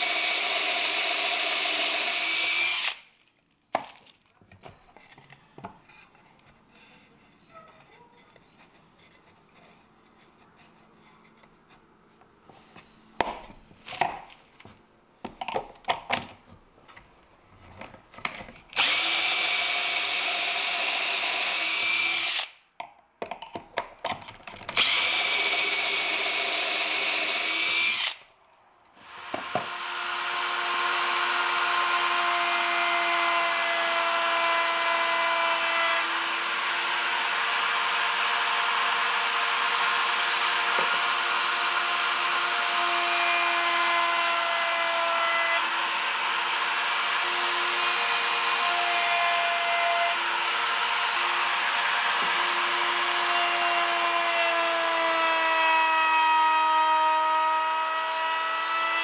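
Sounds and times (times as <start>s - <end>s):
cordless drill boring: 0.0s - 3.0s, 18.8s - 22.5s, 24.8s - 28.2s, 29.0s - 59.0s
router running: 18.8s - 22.5s, 24.8s - 28.2s, 29.0s - 59.0s.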